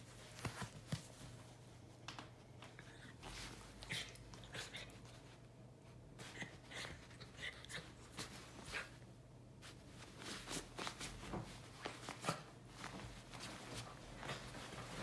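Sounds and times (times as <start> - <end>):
dog pawing rustling comforter: 0.0 - 1.7, 9.6 - 15.0.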